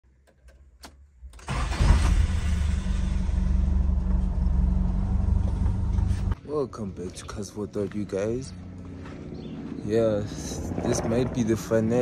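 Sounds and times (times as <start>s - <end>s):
car engine starting and running: 0.2s - 12.0s.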